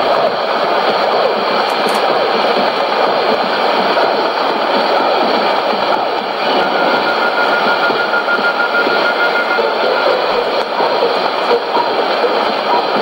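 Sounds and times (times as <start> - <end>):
radio static hiss: 6.3 - 13.0
faint broken whistle: 6.4 - 10.8.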